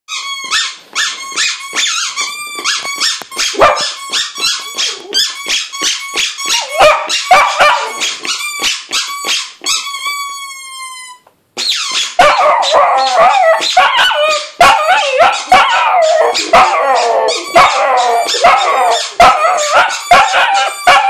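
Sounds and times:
squeaky toy squeaking: 0.1 - 21.0
dog howling: 12.2 - 21.0.

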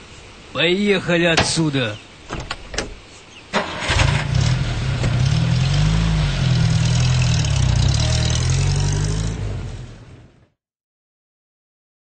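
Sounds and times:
jeep engine running: 3.6 - 10.5.

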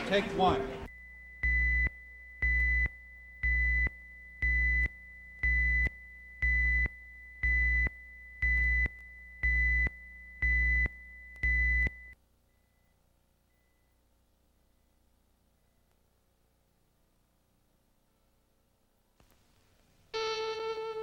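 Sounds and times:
countdown beeps: 0.9 - 12.2.

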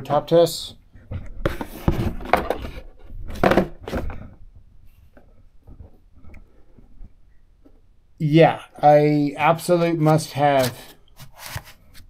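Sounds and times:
rustling and scraping on a desk: 1.0 - 4.2, 10.6 - 12.0.

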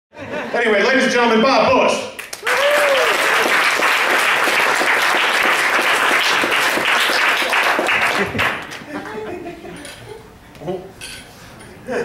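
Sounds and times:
audience applauding: 2.2 - 9.2.

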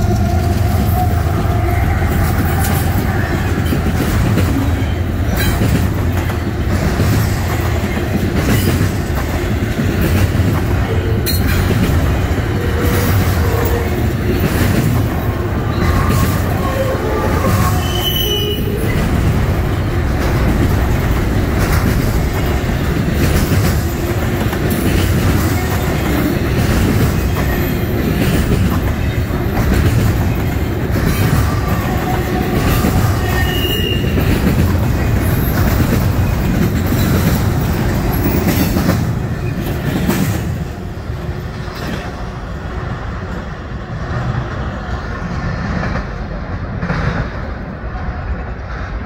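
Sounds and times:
train wheel squeal: 0.0 - 5.8, 10.8 - 11.9, 12.6 - 19.3, 24.7 - 40.5
freight train wheels clattering: 0.0 - 49.0.

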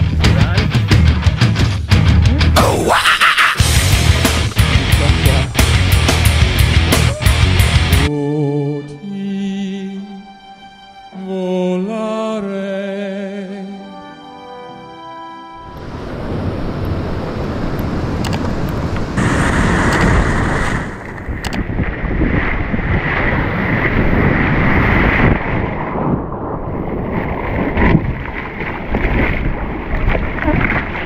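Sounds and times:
surf sloshing around hull: 15.8 - 31.0
wind buffeting microphone: 15.8 - 31.0.

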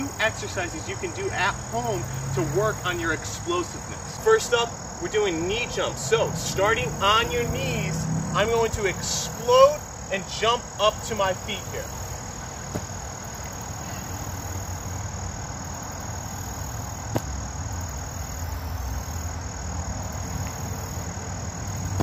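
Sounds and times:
low outdoor rumble: 0.0 - 16.0
insect chirring: 0.0 - 22.0.

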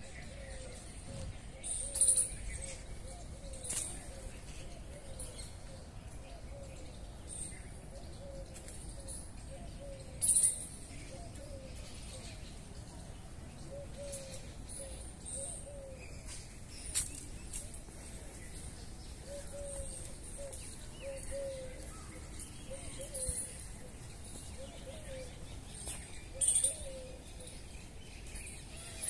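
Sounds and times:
small birds chirping: 0.0 - 29.0
dove cooing: 13.7 - 16.0, 19.2 - 22.1, 22.7 - 23.7, 24.6 - 25.3, 26.3 - 27.5.

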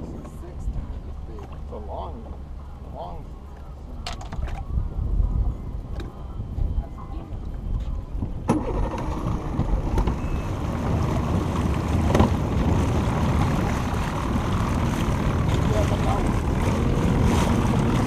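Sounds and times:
boat motor running: 0.0 - 18.0
water rushing along hull: 0.0 - 18.0
wind on microphone: 3.8 - 18.0.

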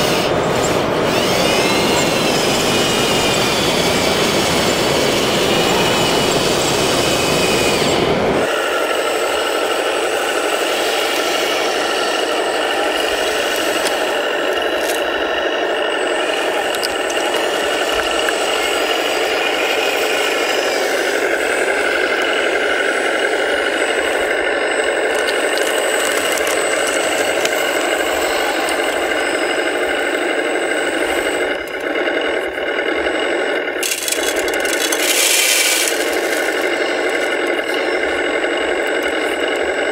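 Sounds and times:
deep rumble: 0.0 - 8.6
electric motor whine: 0.0 - 39.9
rattling: 21.6 - 29.3, 33.4 - 39.9.

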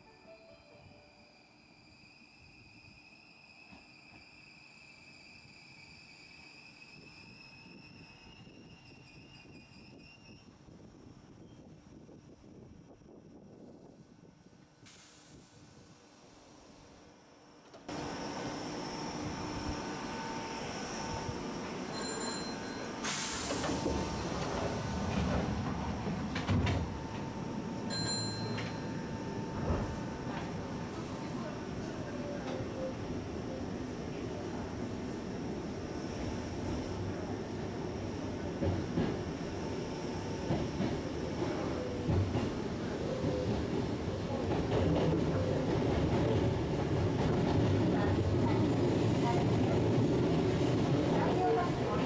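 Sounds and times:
train steady hum: 0.0 - 52.0
sliding doors clunking shut: 23.0 - 27.4.

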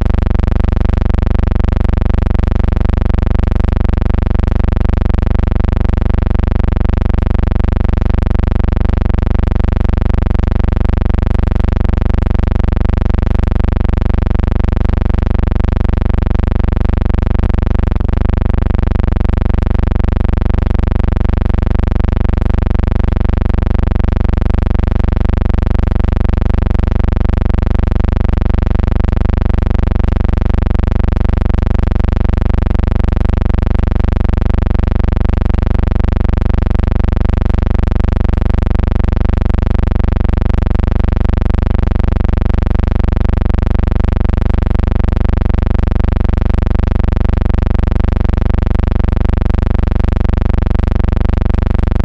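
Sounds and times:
loud droning hum: 0.0 - 22.8, 23.5 - 28.8.

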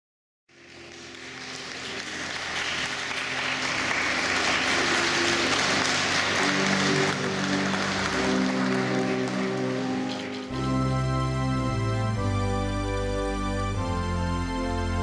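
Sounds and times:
crowd applauding: 0.5 - 11.8.

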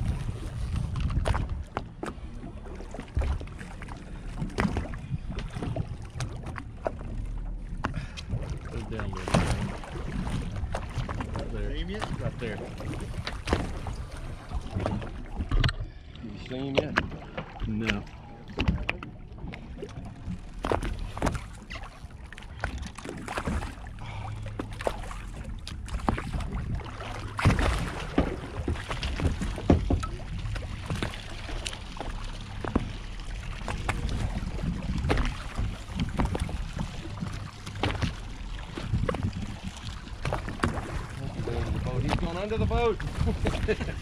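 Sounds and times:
boat engine idling: 0.0 - 44.0
water slapping against hull: 0.0 - 44.0
knocks on boat: 27.4 - 30.2.

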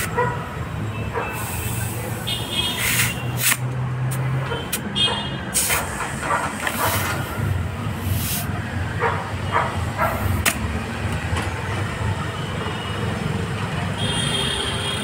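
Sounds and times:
compressed air hissing: 1.3 - 3.6, 5.5 - 7.4, 8.0 - 8.6.

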